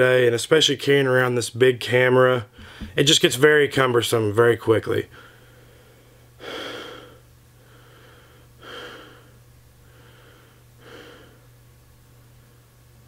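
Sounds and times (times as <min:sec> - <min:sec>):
faint low hum: 0:00.0 - 0:13.0
man breathing: 0:02.5 - 0:03.0, 0:05.1 - 0:11.5.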